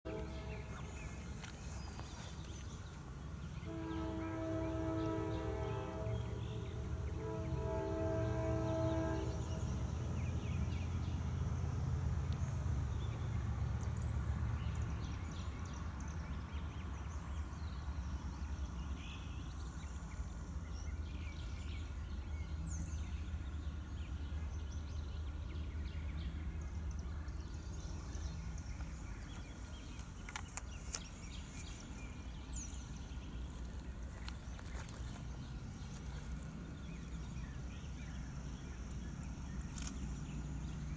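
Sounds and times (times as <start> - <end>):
distant locomotive air horn: 0.1 - 1.2, 3.5 - 10.3
birds chirping: 0.1 - 11.6, 12.3 - 40.9
freight train rumble: 0.1 - 40.9.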